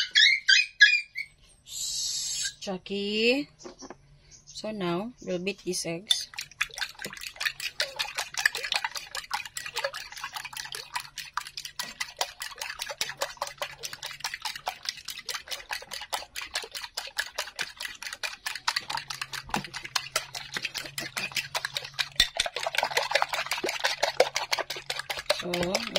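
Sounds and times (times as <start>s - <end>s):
liquid egg splashing: 6.1s - 25.9s
whisk clicking against bowl: 6.1s - 25.9s.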